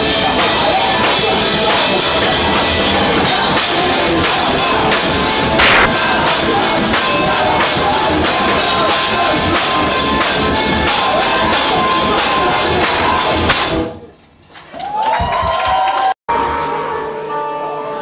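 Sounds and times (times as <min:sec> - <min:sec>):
loud distorted rock band: 0:00.0 - 0:14.1.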